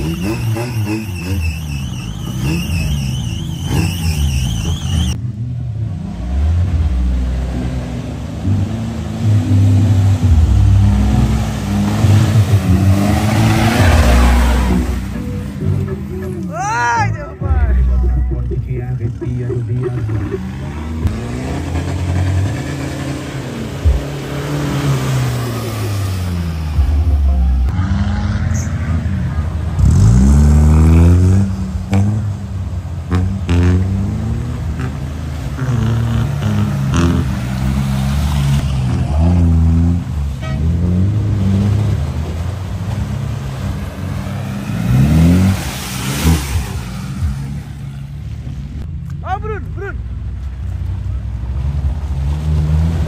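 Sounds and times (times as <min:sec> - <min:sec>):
vehicle engine revving: 0:00.0 - 0:16.4, 0:17.6 - 0:49.0.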